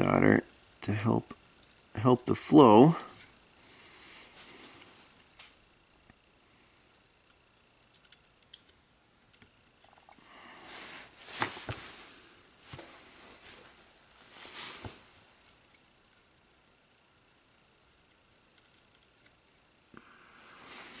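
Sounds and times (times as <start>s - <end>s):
soft hissy rustles: 0.0s - 8.8s, 9.6s - 21.0s.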